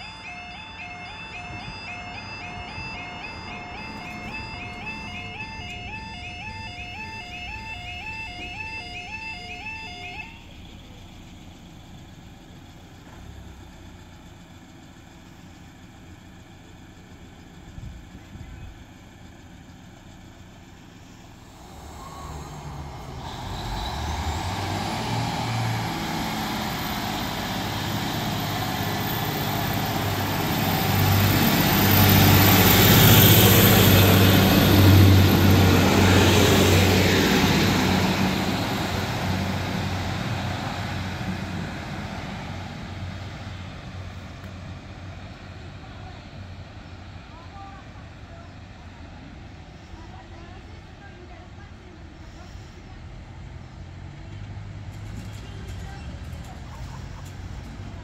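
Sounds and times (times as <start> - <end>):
diesel train engines running: 0.0 - 58.0
train wheel and rail noise: 20.1 - 58.0.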